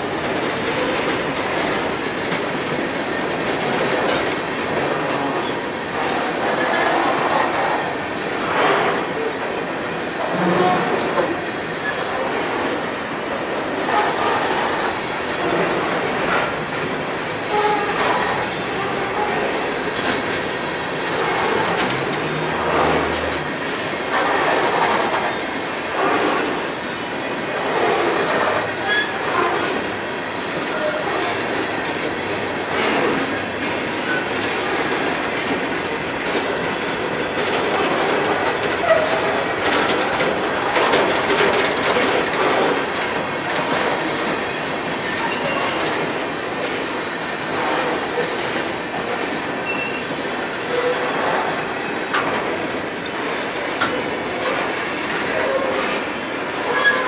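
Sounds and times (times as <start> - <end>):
wheels clacking over rail joints: 0.0 - 26.8, 27.4 - 57.0
train wheels rumbling on rail: 0.0 - 57.0
wheel squeals: 28.8 - 29.7, 49.6 - 50.1.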